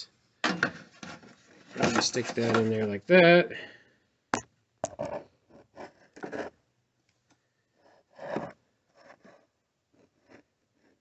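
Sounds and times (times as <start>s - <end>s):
metal bracket scraping plastic: 0.5s - 2.8s.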